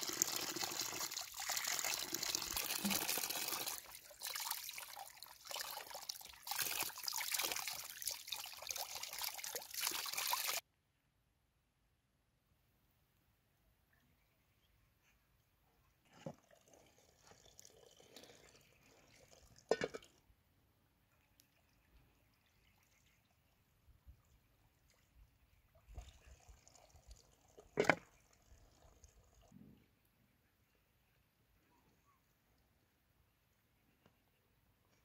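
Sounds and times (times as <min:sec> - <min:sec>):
water from hose splashing: 0:00.0 - 0:10.6.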